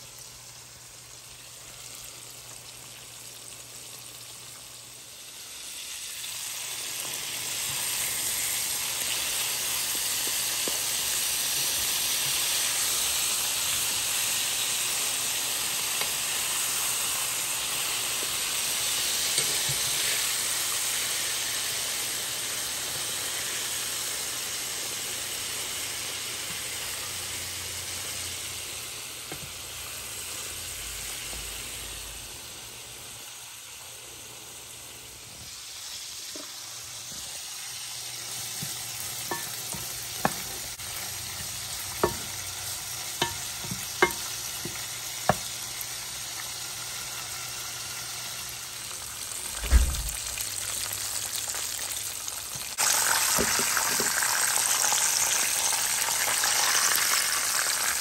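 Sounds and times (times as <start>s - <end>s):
meat sizzling in hot oil: 0.0s - 58.0s
utensil knocking against pan: 42.0s - 42.4s.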